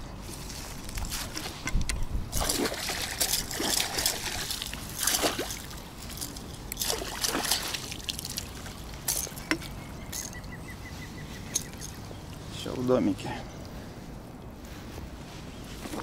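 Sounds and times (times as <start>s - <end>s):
water sloshing: 0.8s - 10.5s
fish thrashing and splashing: 2.3s - 10.4s.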